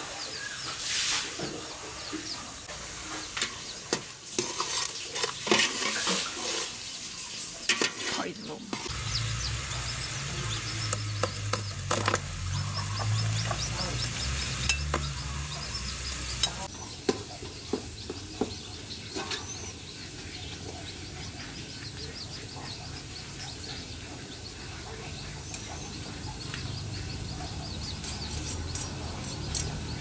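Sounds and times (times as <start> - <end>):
sizzling hiss: 0.6 - 17.2.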